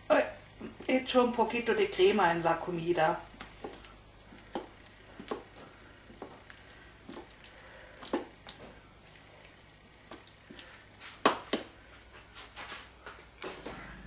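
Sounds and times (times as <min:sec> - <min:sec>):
spoon stirring sauce in a pan: 0:03.3 - 0:11.9.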